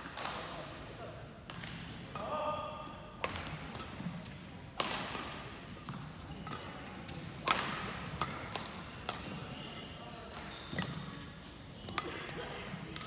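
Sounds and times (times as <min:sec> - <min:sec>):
rackets striking shuttlecock: 0:03.2 - 0:11.2.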